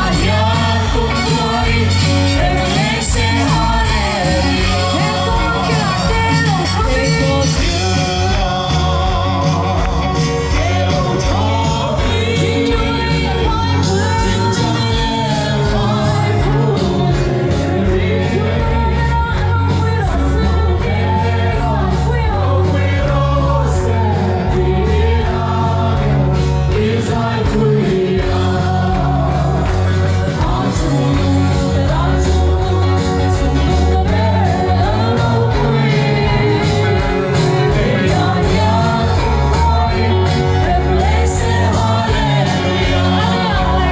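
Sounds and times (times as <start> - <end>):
gospel singing with band: 0.0 - 43.9.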